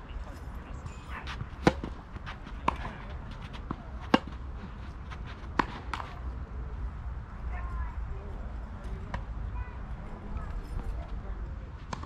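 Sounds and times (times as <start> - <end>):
tennis ball hit by racket: 1.3 - 6.2.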